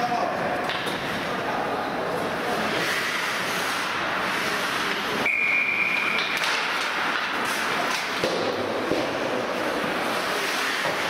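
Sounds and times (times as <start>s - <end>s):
ice rink noise: 0.0s - 11.0s
referee's whistle: 5.2s - 6.2s.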